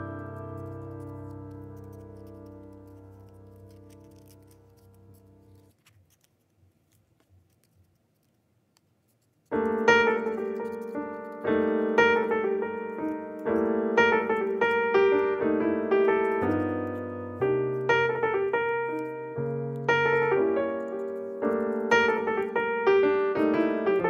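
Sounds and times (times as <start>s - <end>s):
solo piano music: 0.0s - 5.7s, 9.5s - 24.0s
scissors snipping paper: 0.6s - 14.7s.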